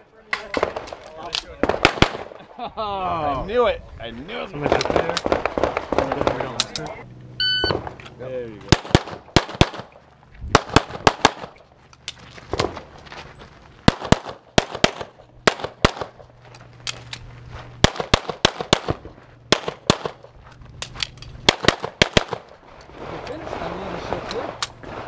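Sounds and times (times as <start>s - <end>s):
pistol shots: 0.5s - 2.4s, 4.7s - 6.8s, 8.7s - 11.6s, 13.8s - 16.2s, 17.8s - 20.3s, 21.4s - 22.5s.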